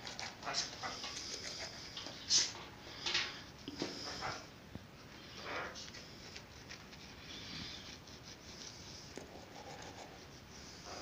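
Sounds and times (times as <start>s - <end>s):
toothbrush scrubbing teeth: 5.8s - 10.4s.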